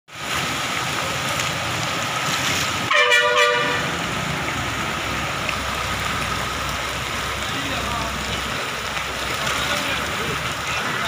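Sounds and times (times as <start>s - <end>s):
rain: 0.1s - 11.0s
traffic through flooded street: 0.1s - 11.0s
vehicle horn honk: 2.9s - 3.9s.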